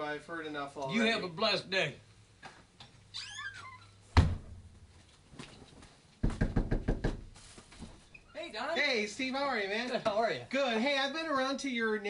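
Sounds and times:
high squeak: 3.2s - 4.0s
door slamming: 4.1s - 4.7s
knuckles knocking on door: 6.2s - 7.3s.

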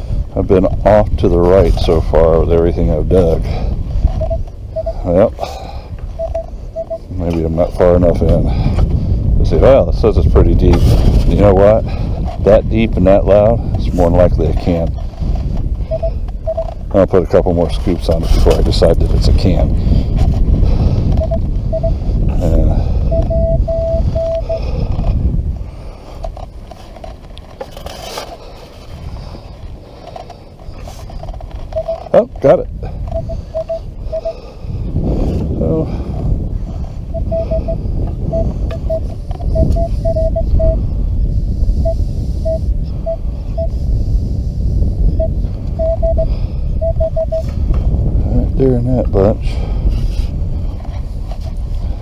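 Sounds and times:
wind rumble on microphone: 0.0s - 52.0s
metal detector beeps: 4.0s - 5.3s, 6.0s - 7.3s, 15.8s - 16.9s, 21.1s - 24.8s, 31.0s - 32.3s, 32.9s - 34.5s, 37.1s - 40.9s, 41.8s - 43.8s, 45.1s - 47.6s.

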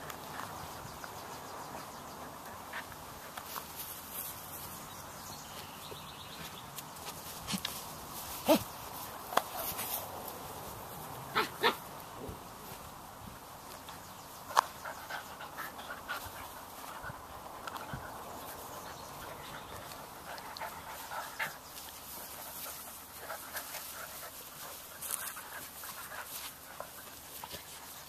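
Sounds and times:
puppies panting: 14.4s - 28.0s.

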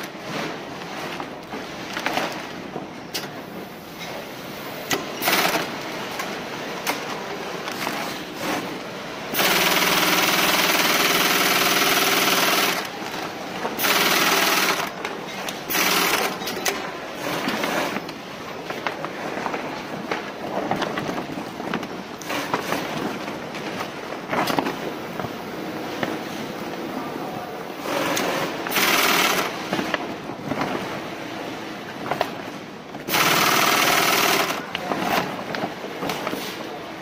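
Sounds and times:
industrial sewing machine stitching: 5.2s - 5.8s, 9.3s - 13.0s, 13.8s - 15.0s, 15.7s - 16.5s, 27.9s - 29.7s, 33.1s - 34.8s.

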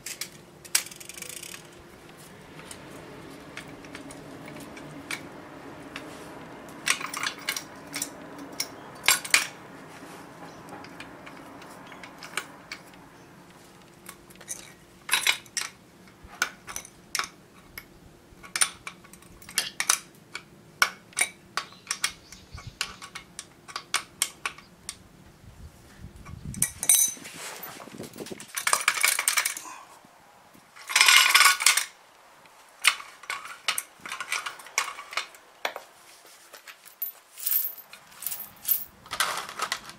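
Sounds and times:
metallic clicks and clinks: 0.0s - 9.6s, 10.7s - 13.0s, 13.8s - 15.8s, 28.4s - 29.6s, 32.8s - 35.4s, 36.6s - 39.9s.

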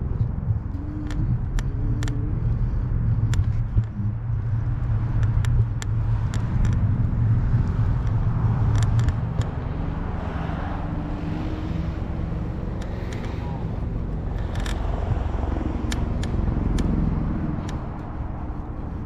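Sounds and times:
road traffic rumble: 0.0s - 19.0s
sharp clicks: 5.1s - 9.6s, 12.7s - 18.1s.

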